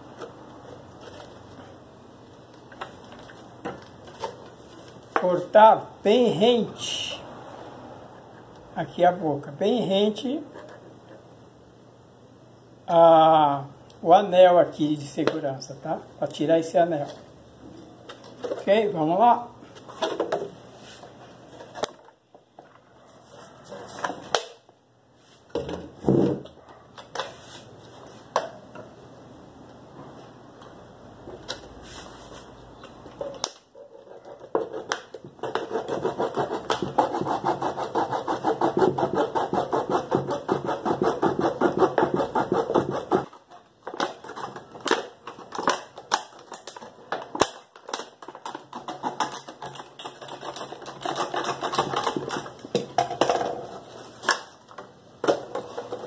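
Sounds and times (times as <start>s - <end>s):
hand saw cutting plastic: 34.6s - 46.8s, 47.4s - 52.6s.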